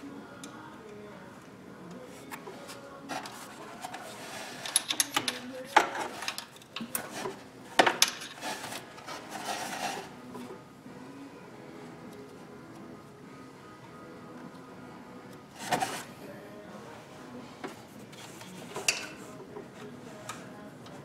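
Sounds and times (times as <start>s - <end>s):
wrench clicking and scraping metal: 3.1s - 9.9s.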